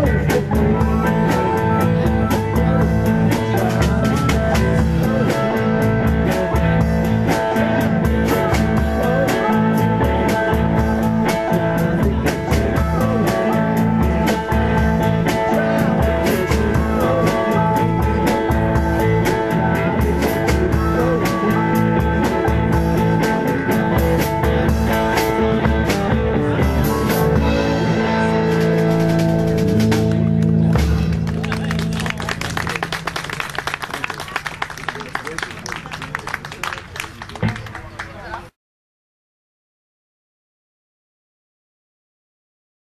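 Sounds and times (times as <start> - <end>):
electric guitar bending notes: 0.0 - 31.8
drum kit: 0.0 - 33.3.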